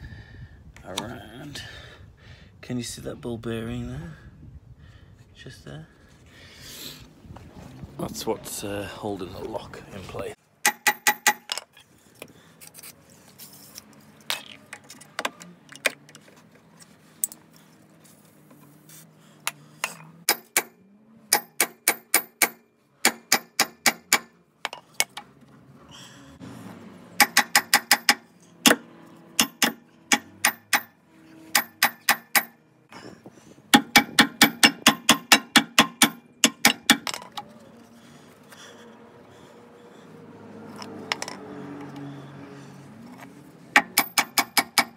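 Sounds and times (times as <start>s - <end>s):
hammer striking metal: 10.6s - 11.5s, 20.3s - 24.3s, 27.2s - 28.8s, 29.4s - 32.6s, 33.7s - 37.2s, 43.8s - 44.9s.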